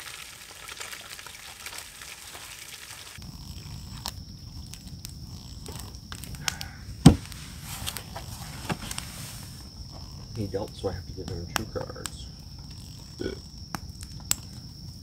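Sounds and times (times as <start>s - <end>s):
fish sizzling in a frying pan: 0.0s - 3.2s
high insect trill: 0.0s - 15.0s.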